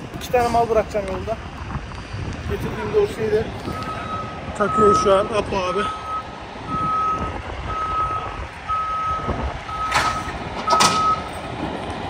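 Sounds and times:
truck engine rumble: 0.0s - 12.0s
truck reversing alarm beeping: 3.4s - 11.5s.

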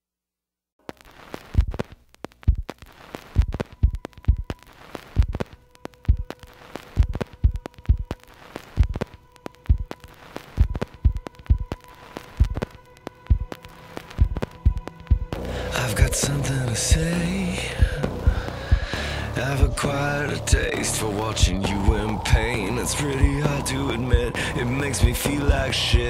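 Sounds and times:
deep thumping beat: 1.6s - 4.6s, 5.2s - 6.4s, 7.0s - 8.2s, 8.8s - 9.1s, 9.7s - 10.0s, 10.6s - 11.8s, 12.4s - 12.7s, 13.3s - 13.6s, 14.2s - 26.0s
steady held tone: 10.6s - 26.0s.

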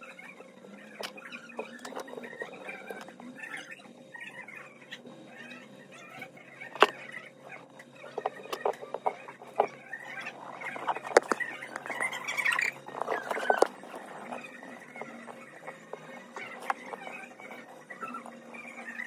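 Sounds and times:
metal tube crinkling: 8.2s - 19.0s.

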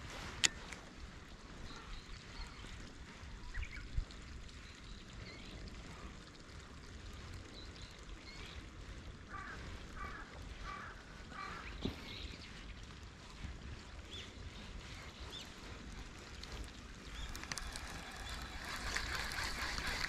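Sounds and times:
wind rumble on microphone: 0.0s - 20.0s.

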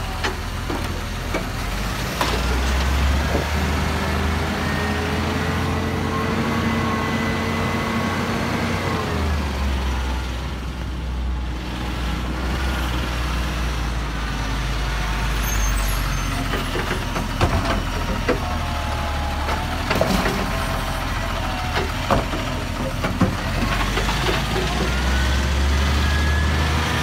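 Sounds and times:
diesel truck engine running: 0.0s - 27.0s
hydraulic arm whining and clanking: 15.5s - 27.0s.

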